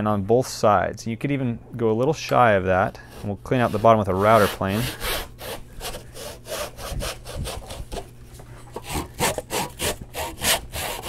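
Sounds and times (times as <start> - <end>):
backsaw sawing wood: 3.1 - 8.0, 8.7 - 11.0.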